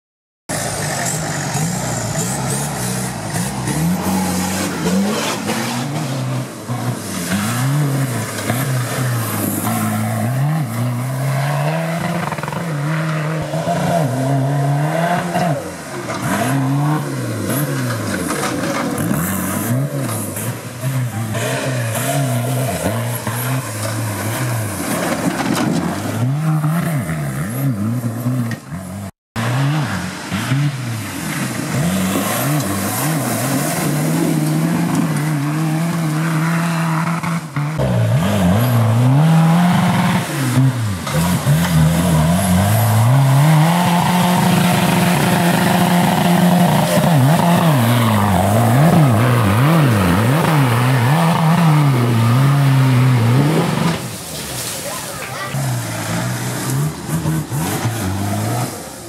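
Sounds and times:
car engine revving hard: 0:00.5 - 0:59.0
tyres on gravel: 0:15.5 - 0:29.0, 0:30.0 - 0:59.0.

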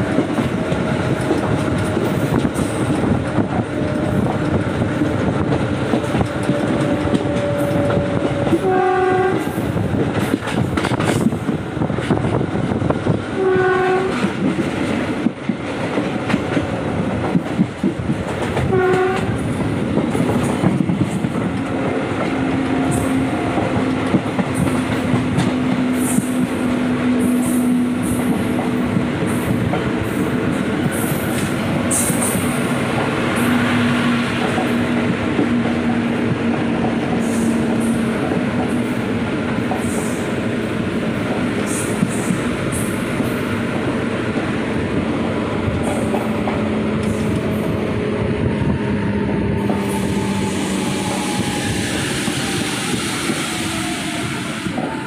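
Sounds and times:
train rumbling on track: 0:00.0 - 0:55.0
train horn blasts: 0:06.4 - 0:09.6, 0:13.3 - 0:14.3, 0:18.6 - 0:19.4.

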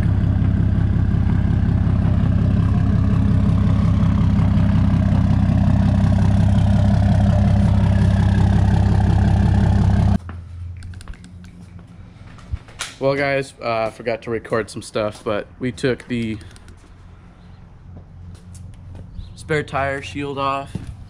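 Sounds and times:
diesel truck engine running: 0:00.0 - 0:12.4.

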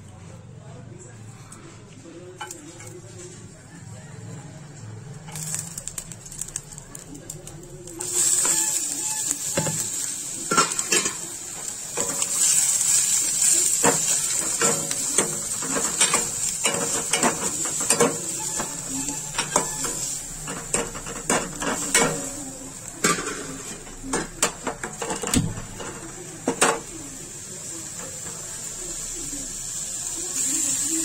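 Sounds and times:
onions sizzling in hot oil: 0:05.3 - 0:31.0
metal spoon scraping pan: 0:08.0 - 0:26.9.

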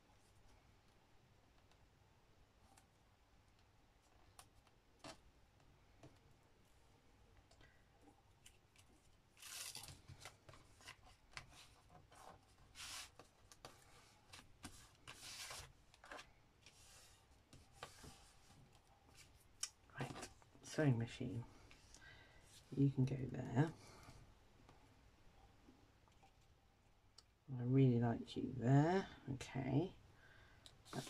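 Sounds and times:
paper rustling and scraping: 0:08.5 - 0:19.4.

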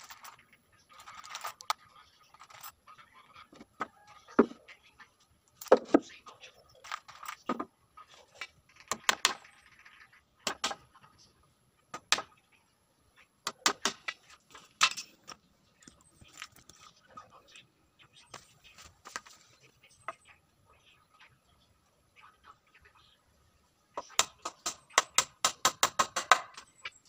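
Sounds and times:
hammer tapping nails into wood: 0:24.1 - 0:26.6.

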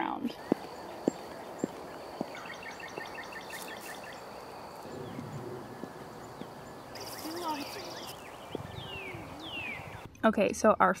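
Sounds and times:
outdoor ambience: 0:00.0 - 0:11.0
boot footsteps on pavement: 0:00.3 - 0:09.0
bird chirping: 0:00.3 - 0:10.2.

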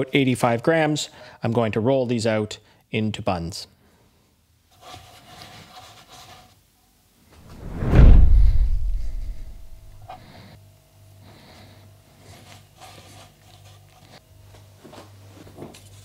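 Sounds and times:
low steady hum: 0:07.4 - 0:10.2
deep low boom: 0:07.5 - 0:10.0.

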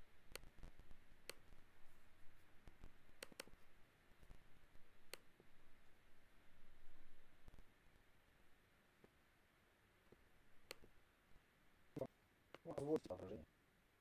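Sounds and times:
small sharp clicks: 0:00.3 - 0:01.6, 0:02.6 - 0:03.6, 0:04.2 - 0:05.4, 0:10.1 - 0:10.9.

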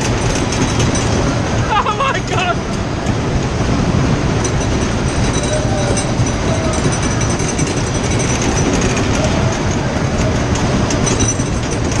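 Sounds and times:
ride wheels rumbling on track: 0:00.0 - 0:12.0.

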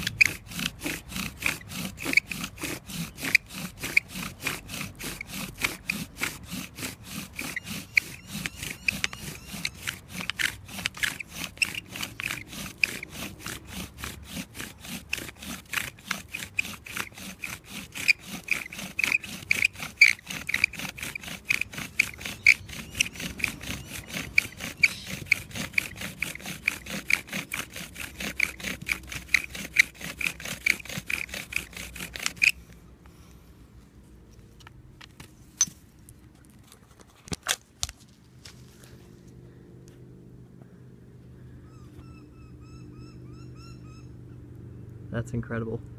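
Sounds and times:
bow drill squeaking and rasping: 0:00.0 - 0:32.7.

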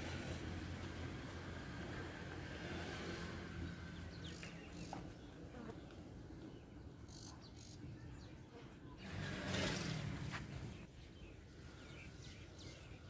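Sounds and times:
small birds chirping: 0:03.5 - 0:13.0.

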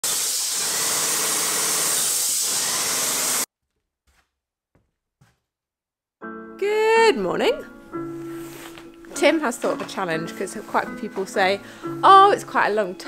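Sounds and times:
paint sprayer hissing: 0:00.0 - 0:03.5.

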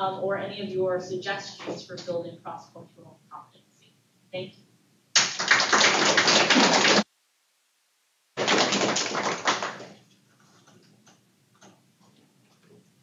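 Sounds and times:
audience applauding: 0:05.2 - 0:07.1, 0:08.4 - 0:10.0
faint scattered claps: 0:05.2 - 0:07.1, 0:08.4 - 0:10.1.

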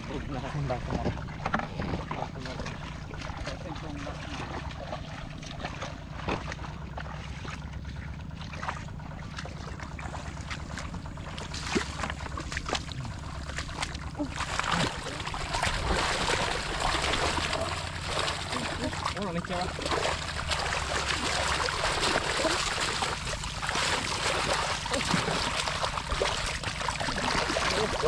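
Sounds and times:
wading footsteps in water: 0:00.0 - 0:28.0
hands splashing in water: 0:08.4 - 0:28.0.

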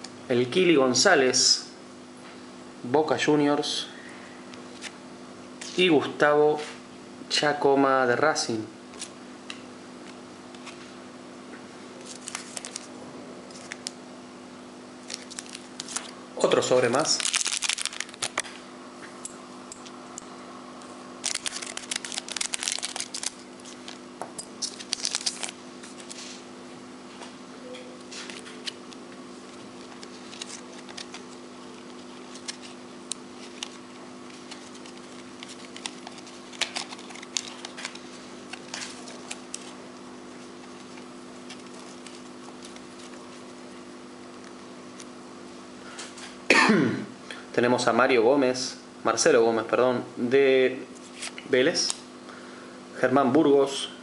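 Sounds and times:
steady low hum: 0:00.0 - 0:54.0
cards rustling and clicking: 0:12.0 - 0:12.9, 0:13.5 - 0:14.0, 0:15.0 - 0:18.6, 0:21.2 - 0:26.4, 0:28.0 - 0:43.6
wrapper tearing and crinkling: 0:12.0 - 0:12.9, 0:15.0 - 0:16.2, 0:16.8 - 0:18.5, 0:21.2 - 0:24.0, 0:24.6 - 0:26.3, 0:29.8 - 0:32.8, 0:33.4 - 0:39.8.

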